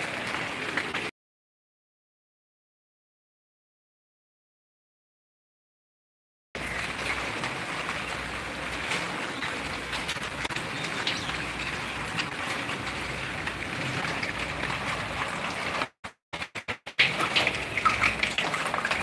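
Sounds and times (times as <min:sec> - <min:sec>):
rain pattering on surfaces: 0:00.0 - 0:01.1, 0:06.6 - 0:19.0.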